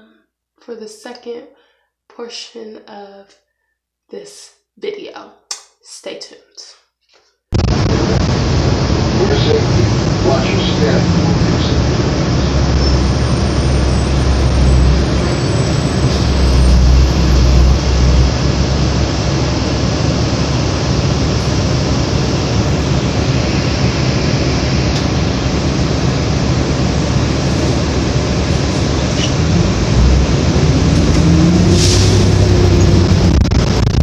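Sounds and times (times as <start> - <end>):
bus engine and road rumble: 7.6 - 34.0.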